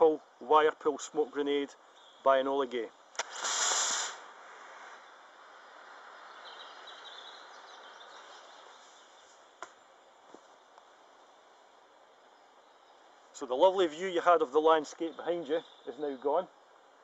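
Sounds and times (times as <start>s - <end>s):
smoke grenade hissing: 3.2s - 5.2s.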